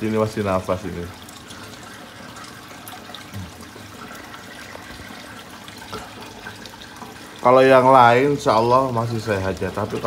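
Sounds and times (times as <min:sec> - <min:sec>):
bubbling water: 0:00.0 - 0:10.0.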